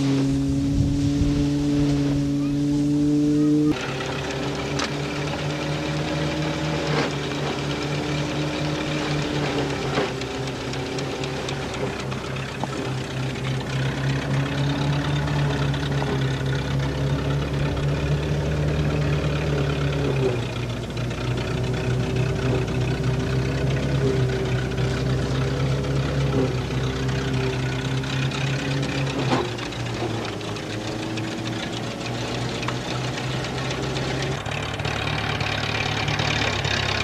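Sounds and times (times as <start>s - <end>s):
threshing mill humming: 0.0s - 37.0s.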